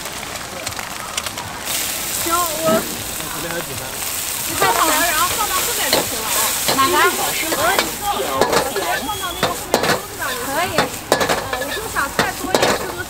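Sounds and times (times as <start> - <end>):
noodles sizzling in a wok: 0.0 - 13.0
metal ladle scraping a wok: 4.5 - 13.0.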